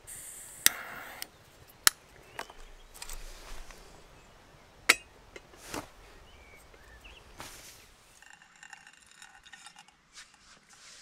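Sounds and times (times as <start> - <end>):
bird chirps: 0.7 - 4.8, 6.1 - 7.3
rustling: 1.1 - 4.2, 5.4 - 11.0
metal kettle clink: 4.9 - 5.4.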